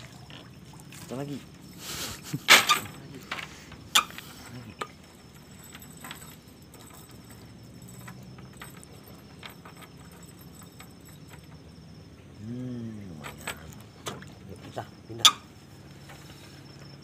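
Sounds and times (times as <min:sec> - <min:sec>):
water splashing: 0:00.0 - 0:07.7
insects chirping: 0:00.0 - 0:17.0.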